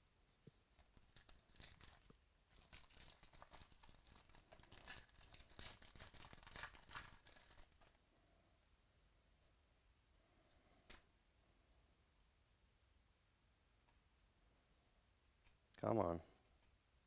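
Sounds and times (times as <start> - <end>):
foil wrapper tearing and crinkling: 1.0 - 7.9.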